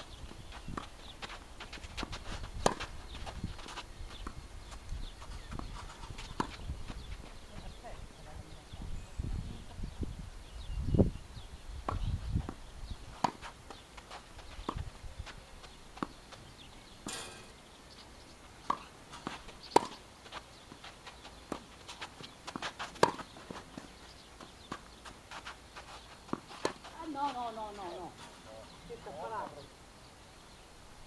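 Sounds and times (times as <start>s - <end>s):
rackets striking tennis ball: 17.0s - 17.7s, 21.5s - 23.9s.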